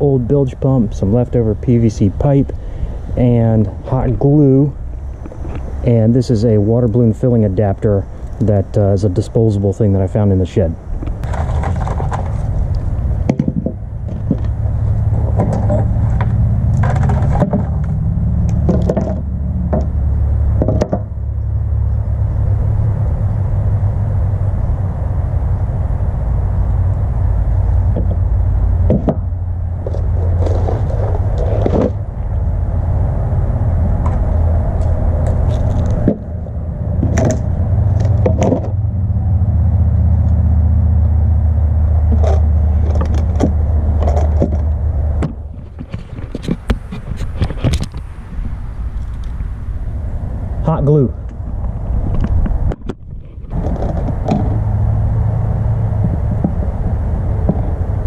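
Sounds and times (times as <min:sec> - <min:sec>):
low rumble: 0:10.0 - 0:58.0
hard objects knocking on board: 0:13.3 - 0:14.5, 0:15.4 - 0:17.9, 0:18.6 - 0:19.9, 0:20.6 - 0:21.1, 0:28.9 - 0:29.2, 0:38.0 - 0:38.7.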